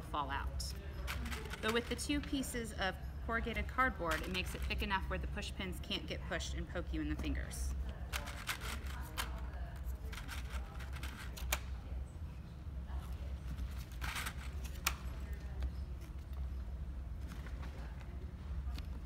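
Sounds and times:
steady low hum: 0.0s - 19.0s
rustling of craft materials: 1.0s - 2.8s, 3.4s - 5.0s.

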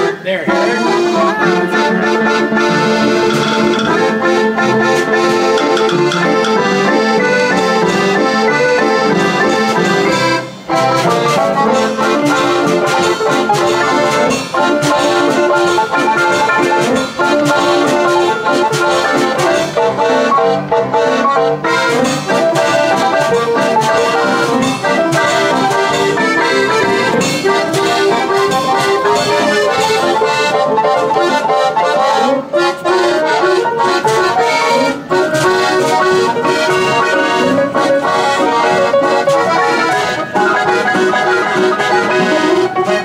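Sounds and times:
player piano and accordion tune: 0.0s - 43.0s
drum and percussion strokes: 2.8s - 7.0s.

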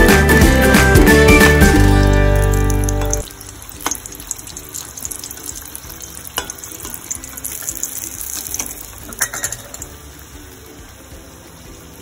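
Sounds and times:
food sizzling in hot oil: 0.0s - 12.0s
oil popping: 1.6s - 10.4s.

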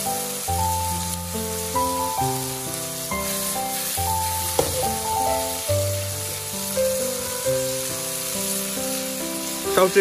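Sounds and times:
background music: 0.0s - 10.0s
vegetables sizzling in a pan: 0.0s - 10.0s
sharp knock: 4.6s - 5.0s.

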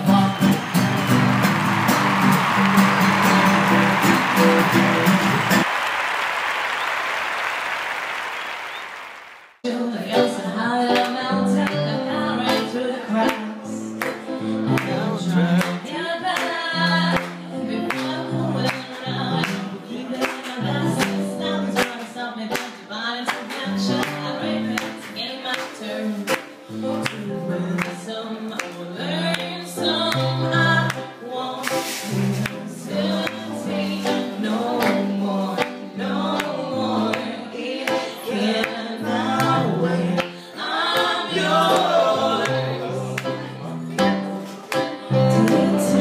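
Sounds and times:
woman singing into a microphone: 0.0s - 0.6s, 9.6s - 46.0s.

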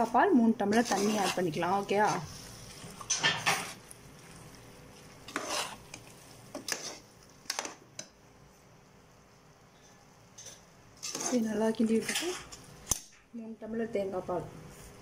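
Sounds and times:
metal ladle scraping pot: 0.7s - 3.8s, 5.2s - 7.7s, 10.4s - 12.6s.

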